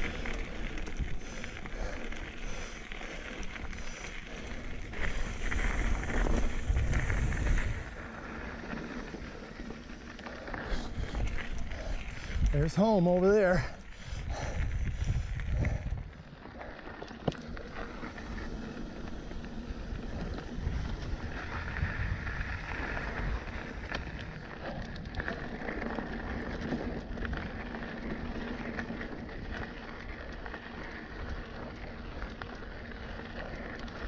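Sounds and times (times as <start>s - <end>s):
bike clicks and rattles: 0.0s - 34.0s
bike tyres on dirt: 0.0s - 34.0s
wind buffeting microphone: 4.8s - 12.8s, 13.9s - 16.4s, 17.5s - 30.2s.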